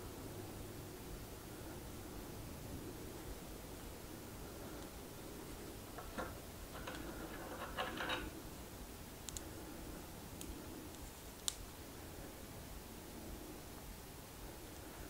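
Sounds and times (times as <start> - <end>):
small metal shims clicking: 6.0 - 8.4.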